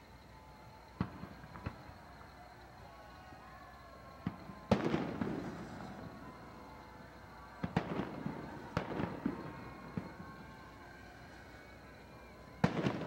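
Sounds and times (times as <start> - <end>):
firework crackling: 0.0 - 13.0
firework bangs: 1.0 - 2.4, 4.1 - 13.0.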